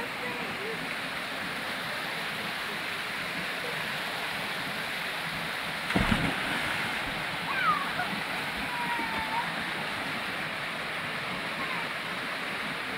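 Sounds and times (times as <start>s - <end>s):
waterfall rushing over boulders: 0.0s - 12.9s
low thump: 5.9s - 7.0s.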